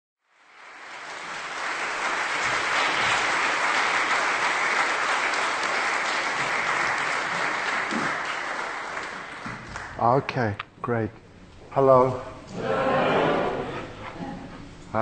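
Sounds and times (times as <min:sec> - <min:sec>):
audience applauding: 0:00.3 - 0:10.1.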